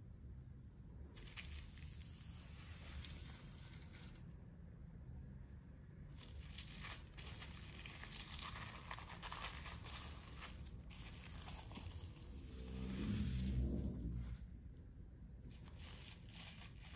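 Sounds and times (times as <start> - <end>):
plastic film crinkling: 1.2 - 2.3, 6.1 - 12.8, 15.5 - 16.9.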